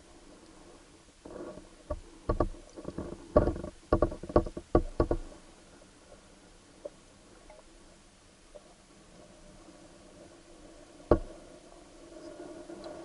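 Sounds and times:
faint steady hum: 0:00.0 - 0:13.0
muffled underwater knocks: 0:01.9 - 0:05.3, 0:11.1 - 0:11.3.

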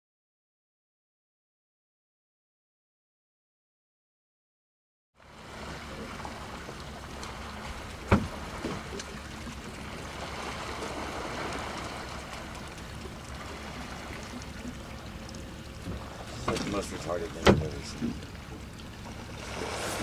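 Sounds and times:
water washing around boat: 0:05.2 - 0:20.0.

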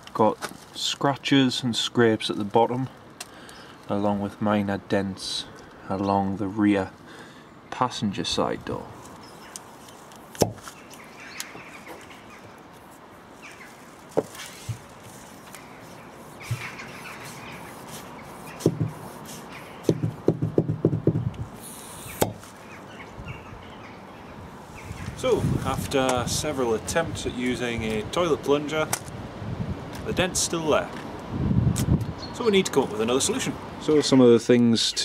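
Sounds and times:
short knocks and pops: 0:10.4 - 0:10.6, 0:18.6 - 0:19.0, 0:19.8 - 0:21.6, 0:22.2 - 0:22.4.

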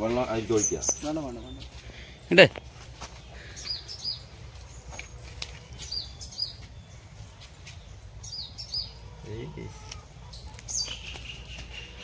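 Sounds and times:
bird chirping: 0:00.0 - 0:12.0.

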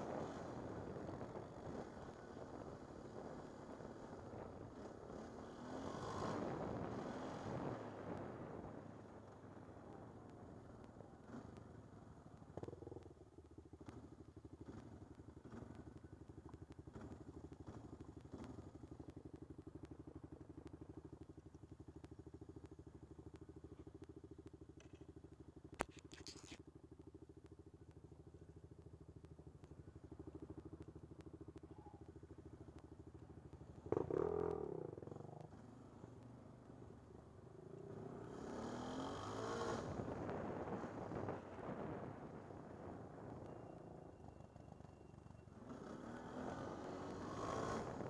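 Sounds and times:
atv engine running: 0:00.0 - 0:48.0
second atv engine passing close: 0:37.8 - 0:42.1, 0:45.5 - 0:48.0.

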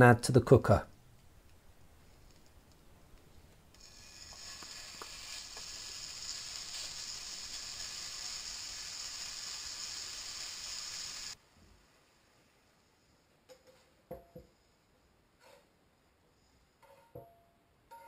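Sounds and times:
spatula spreading food in pan: 0:03.8 - 0:11.1
bacon sizzling in a frying pan: 0:03.8 - 0:11.4.

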